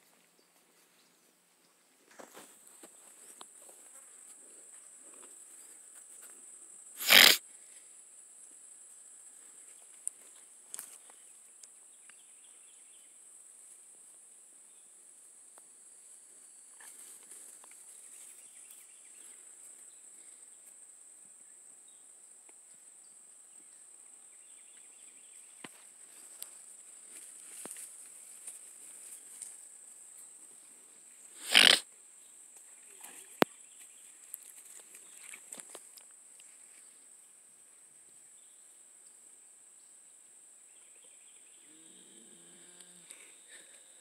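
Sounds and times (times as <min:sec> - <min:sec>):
cow snorting: 0:07.0 - 0:07.4, 0:31.4 - 0:31.8.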